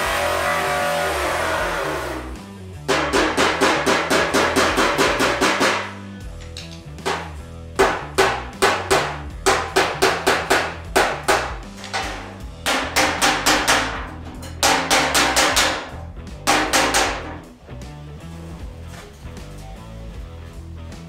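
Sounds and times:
background music with bass line: 0.0 - 21.0
hammer striking sheet steel: 2.8 - 6.0, 7.0 - 17.5.

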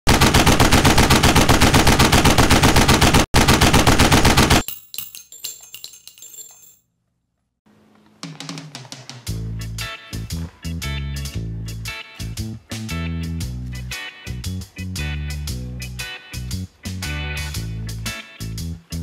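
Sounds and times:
machine-gun fire: 0.1 - 4.6
guitar music: 9.3 - 19.0.

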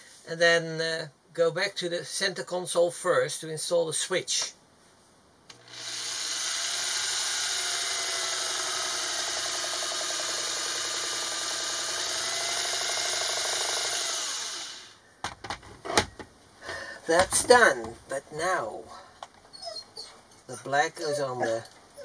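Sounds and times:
electric drill boring into plastic: 5.5 - 15.0.

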